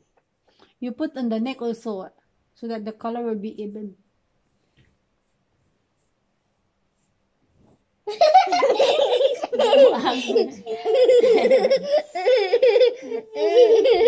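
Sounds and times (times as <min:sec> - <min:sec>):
child and woman laughing: 0:08.1 - 0:14.0.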